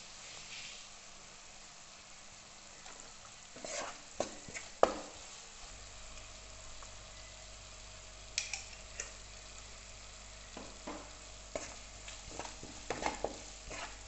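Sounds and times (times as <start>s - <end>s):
vegetables sizzling in oil: 0.0s - 14.0s
wooden spatula scraping a pan: 0.2s - 0.9s, 2.9s - 5.4s, 10.6s - 14.0s.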